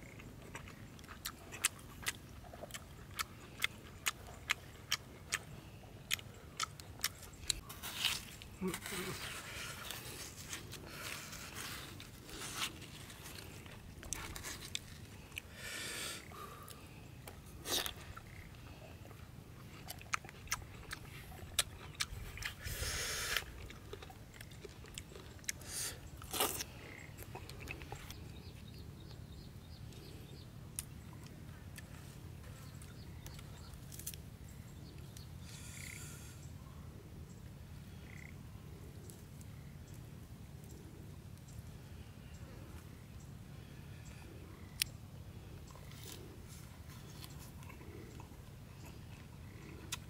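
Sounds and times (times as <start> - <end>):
chewing and crunching: 0.0 - 15.5, 16.3 - 29.1, 29.9 - 35.3, 44.4 - 50.0.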